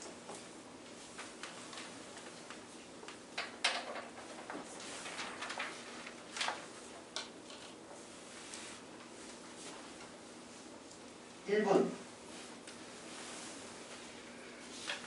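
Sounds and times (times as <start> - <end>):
paper rustling: 1.1 - 10.2.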